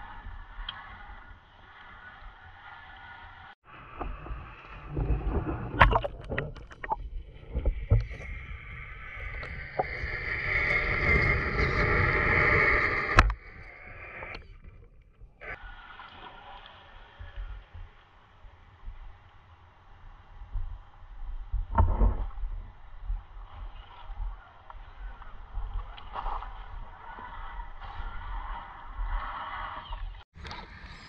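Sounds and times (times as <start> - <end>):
muffled underwater rushing and gurgling: 3.6 - 30.8
water splashing and sloshing: 3.9 - 8.3
water rushing: 4.3 - 8.0.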